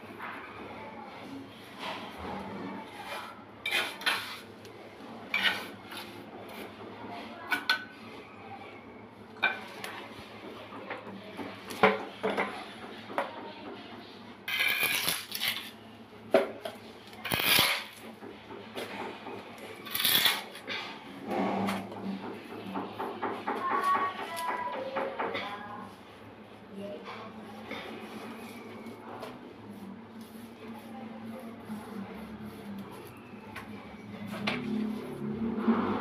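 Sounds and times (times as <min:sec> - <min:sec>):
trowel scraping mortar: 0:02.8 - 0:04.5, 0:05.3 - 0:06.6, 0:14.5 - 0:15.8, 0:17.2 - 0:18.0, 0:19.8 - 0:20.8.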